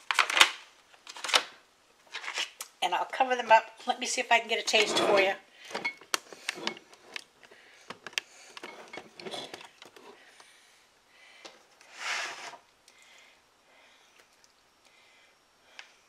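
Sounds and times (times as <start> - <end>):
utensil scraping a dish: 4.7 - 5.4.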